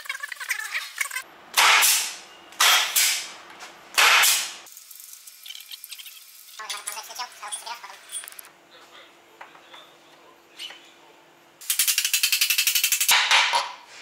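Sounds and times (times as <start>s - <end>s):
air ratchet hissing: 11.6s - 13.1s
ratchet clicking: 11.6s - 13.1s.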